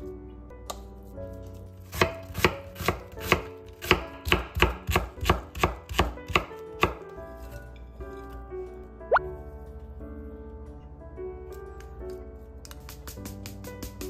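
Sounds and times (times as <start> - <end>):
knife chopping on wooden board: 1.9 - 7.0.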